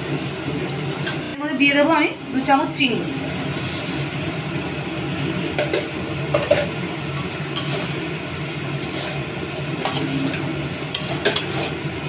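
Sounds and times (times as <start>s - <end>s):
spatula scraping metal pan: 7.5s - 8.0s, 8.8s - 11.8s.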